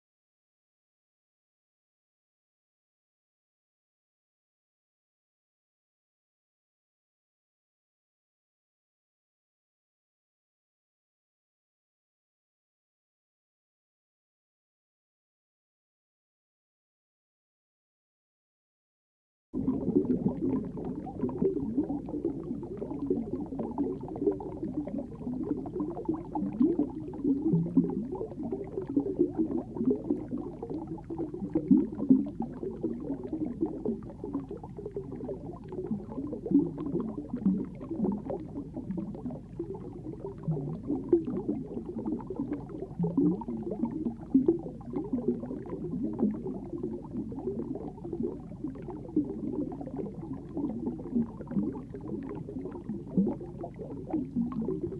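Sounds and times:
underwater burbling water: 19.6 - 54.9.

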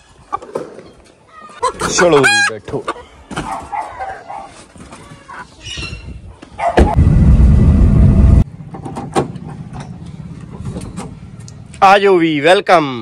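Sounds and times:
loud low rumble: 7.0 - 8.7.

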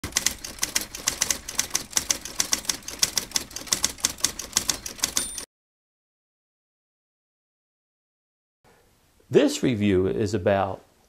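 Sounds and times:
typewriter keys clacking: 0.0 - 5.5
typewriter bell ring: 1.0 - 5.5.

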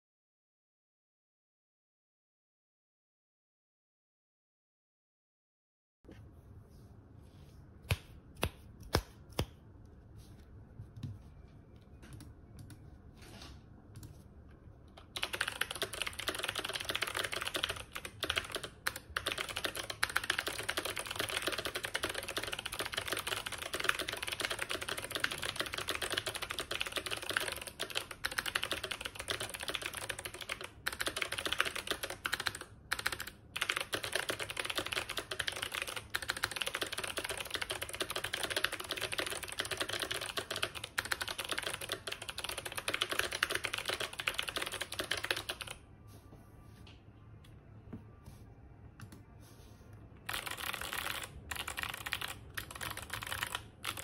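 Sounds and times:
fast typing on clicky keyboard: 15.0 - 45.8, 50.3 - 54.0.

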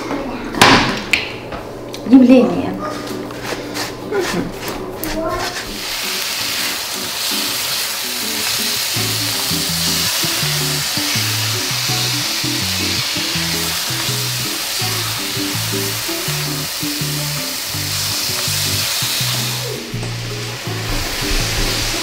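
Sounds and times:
background music with low melody: 2.4 - 22.0
apples sizzling in a frying pan: 5.1 - 22.0.

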